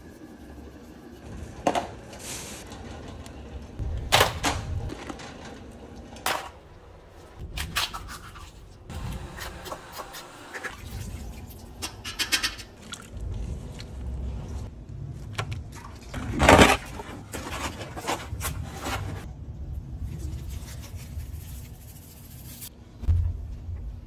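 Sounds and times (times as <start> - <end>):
loud rustling scrape: 16.4 - 19.3
low rumble: 23.0 - 24.0.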